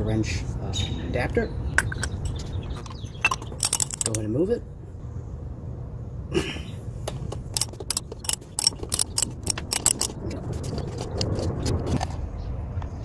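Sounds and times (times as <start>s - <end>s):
ratchet wrench clicking: 3.6s - 4.2s, 7.6s - 10.1s.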